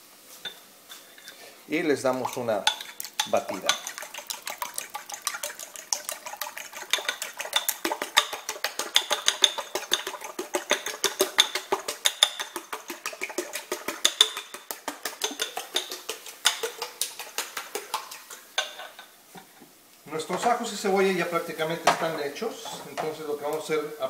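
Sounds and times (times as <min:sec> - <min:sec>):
fork beating eggs in a bowl: 0:02.0 - 0:19.1.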